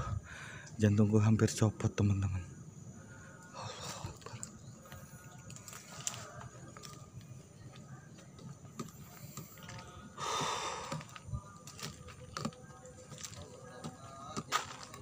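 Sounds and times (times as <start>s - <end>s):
footsteps on dry leaves: 11.0s - 15.0s.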